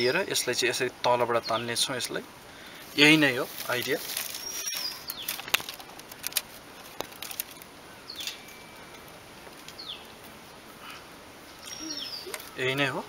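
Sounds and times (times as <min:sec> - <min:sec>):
small bird chirping: 0:04.3 - 0:05.5, 0:08.0 - 0:08.9, 0:09.7 - 0:10.2, 0:11.5 - 0:12.9.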